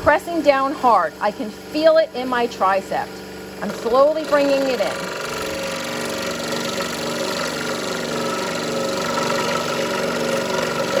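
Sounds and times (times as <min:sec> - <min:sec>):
scroll saw cutting wood: 0:03.6 - 0:11.0.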